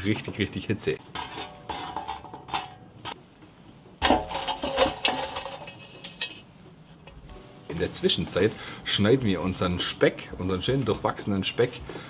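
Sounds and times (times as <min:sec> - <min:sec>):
metal tool scraping charcoal: 0:01.0 - 0:03.2, 0:04.0 - 0:06.5
pot set down with metal clank: 0:01.0 - 0:03.2, 0:04.0 - 0:06.5.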